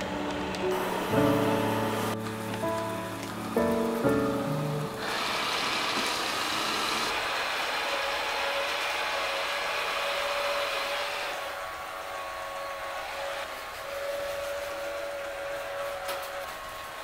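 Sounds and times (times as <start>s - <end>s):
robot vacuum whine: 0.0s - 2.4s, 4.5s - 17.0s
robot vacuum whirring rush: 5.0s - 17.0s.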